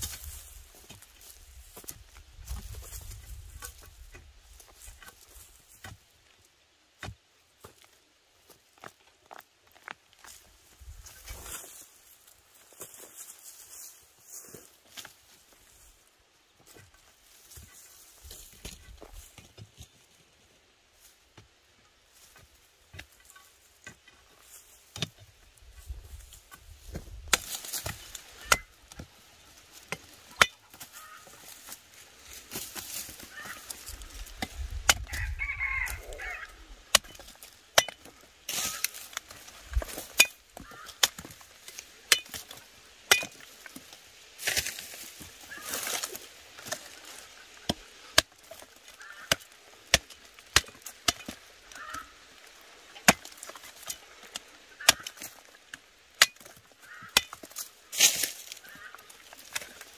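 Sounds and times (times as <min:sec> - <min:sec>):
roots and dry soil rustling: 0:00.0 - 0:59.9
knife chopping roots: 0:26.8 - 0:29.1, 0:36.9 - 0:52.1, 0:53.0 - 0:59.8.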